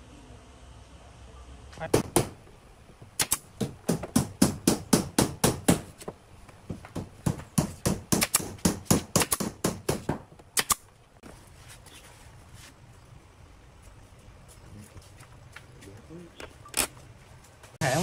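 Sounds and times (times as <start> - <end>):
nail gun firing into wood: 3.2 - 5.9, 7.2 - 10.9.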